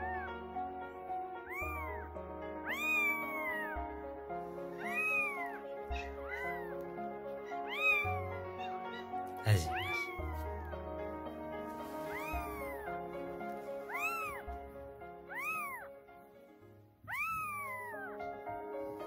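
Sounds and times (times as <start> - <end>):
background music: 0.0 - 19.0
kittens mewing: 1.4 - 2.0, 2.7 - 3.8, 4.8 - 6.8, 7.6 - 10.7, 12.0 - 12.9, 13.9 - 14.5, 15.3 - 15.8, 17.1 - 18.2.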